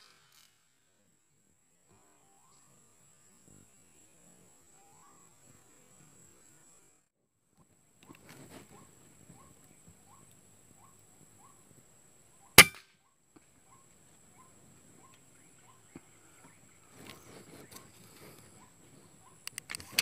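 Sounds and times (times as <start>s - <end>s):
soft rustle: 8.0s - 10.1s, 16.8s - 20.0s
air rifle shot: 12.6s - 12.8s.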